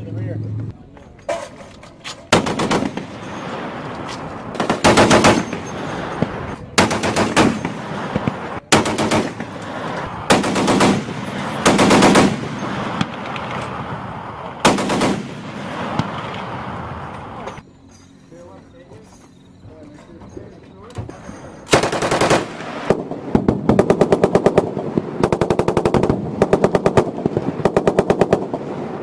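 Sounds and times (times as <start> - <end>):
machine gun firing bursts: 2.3 - 3.9, 4.5 - 13.7, 14.6 - 16.2, 21.7 - 29.0.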